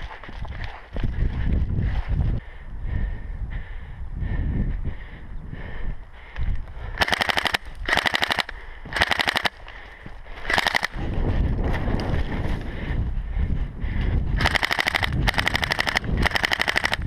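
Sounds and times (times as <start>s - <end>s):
low rumble of movement: 0.0s - 7.0s, 7.6s - 17.0s
wind on microphone: 0.0s - 9.4s, 10.5s - 17.0s
airsoft rifle full-auto bursts: 7.0s - 9.6s, 10.4s - 11.0s, 14.4s - 17.0s.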